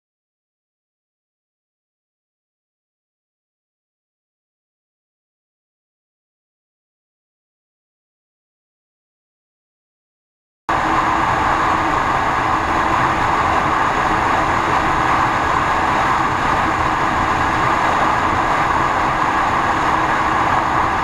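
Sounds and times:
motorcycle engine at full throttle: 0:10.8 - 0:21.0.

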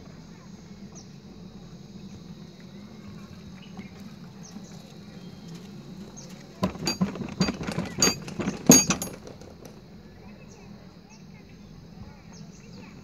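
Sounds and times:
faint high insect tone: 0:00.0 - 0:13.0
steady low hum: 0:00.0 - 0:13.0.

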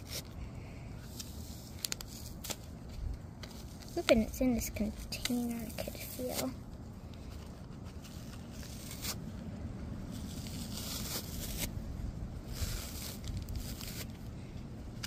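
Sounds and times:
low steady rumble: 0:00.0 - 0:15.0
fur tearing and rustling: 0:07.4 - 0:14.2.

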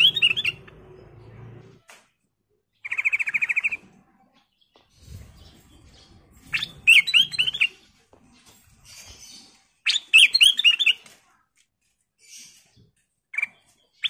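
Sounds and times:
bird singing whistled notes: 0:06.4 - 0:07.7, 0:09.9 - 0:11.0.

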